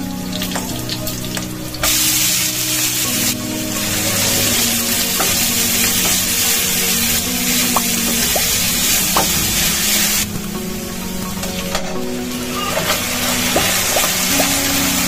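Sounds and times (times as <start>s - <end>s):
onions sizzling in hot oil: 0.0s - 15.0s
spatula scraping pan: 11.8s - 15.0s.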